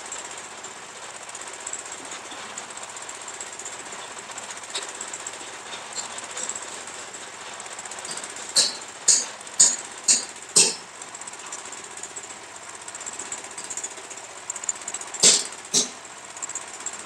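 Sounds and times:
metal clanks on steel frame: 3.8s - 10.9s, 15.2s - 16.0s.

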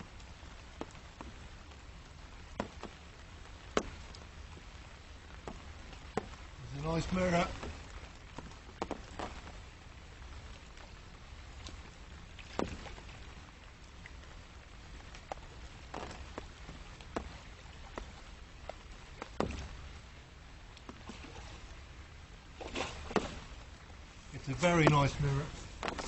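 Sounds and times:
fish splashing in water: 20.8s - 23.8s.

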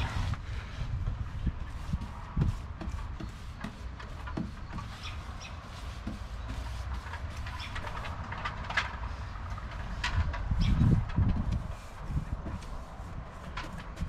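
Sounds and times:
wind rumbling on microphone: 0.0s - 5.4s, 7.0s - 14.0s
paintbrush swishing on wood: 1.2s - 8.1s, 10.8s - 14.0s.

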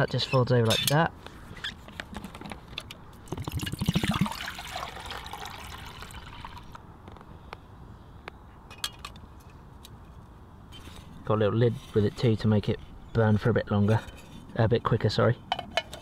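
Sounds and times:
water pouring into metal pot: 3.3s - 6.8s.

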